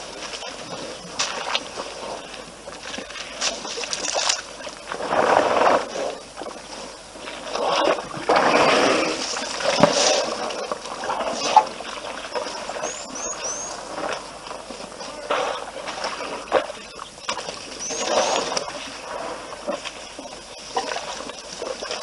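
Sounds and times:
water sloshing and splashing: 0.0s - 22.0s
small bird chirping: 12.3s - 13.8s, 16.8s - 18.5s.

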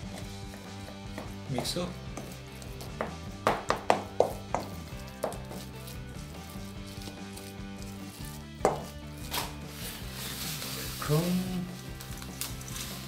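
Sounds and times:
wooden spatula knocking metal bowl: 3.0s - 5.4s, 8.6s - 8.9s.

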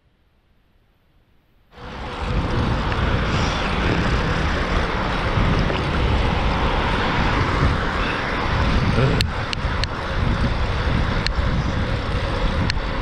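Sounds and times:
bicycle tyre noise on asphalt: 1.7s - 13.0s
wind buffeting microphone: 1.8s - 13.0s.

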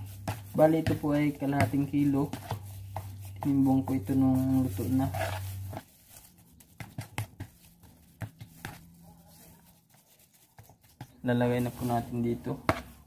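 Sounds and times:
spoon scraping plastic bowl: 0.0s - 6.3s.

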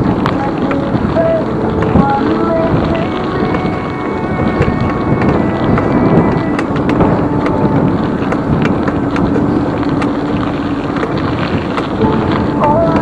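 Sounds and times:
bike rattling over ground: 0.0s - 13.0s
wind on microphone: 0.0s - 13.0s.

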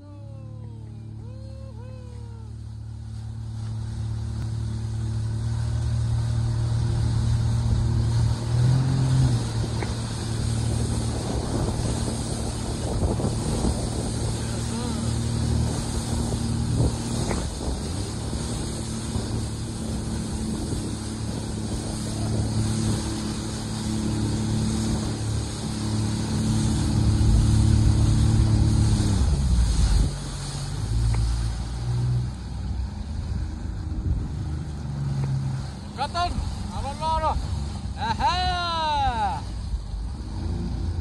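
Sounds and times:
jet ski engine running: 0.0s - 41.0s
water rushing: 0.0s - 41.0s
wind buffeting microphone: 7.4s - 31.0s, 33.0s - 34.8s.

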